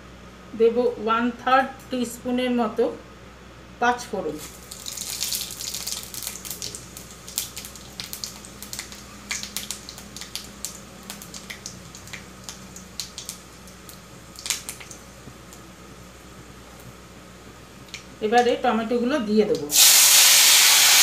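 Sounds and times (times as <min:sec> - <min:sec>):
seeds crackling in hot oil: 0:04.4 - 0:21.0.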